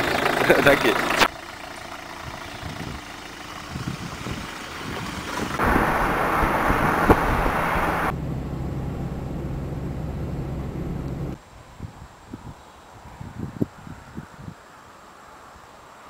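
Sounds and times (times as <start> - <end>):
car engine and road rumble: 0.0 - 11.4
tyre and wind hiss: 2.2 - 8.1, 11.3 - 16.0.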